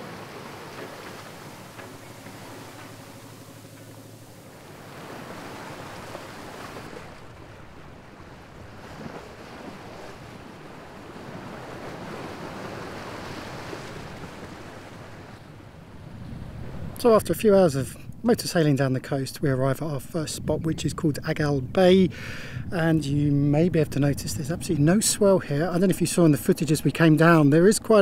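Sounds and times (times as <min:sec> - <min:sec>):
water splashing along hull: 0:00.0 - 0:21.6
wind buffeting microphone: 0:00.0 - 0:28.0.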